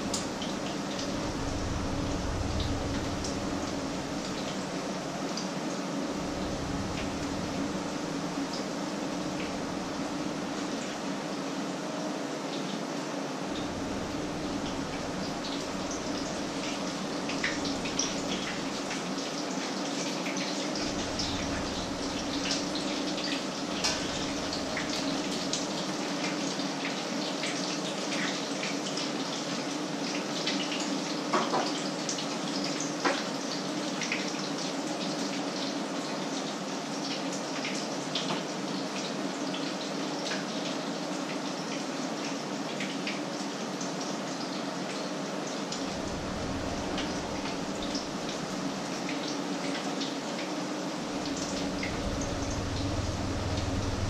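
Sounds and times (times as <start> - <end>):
steady low hum: 0.0 - 5.3, 6.0 - 10.6, 13.4 - 19.0, 20.7 - 25.3, 45.8 - 48.9, 51.0 - 54.0.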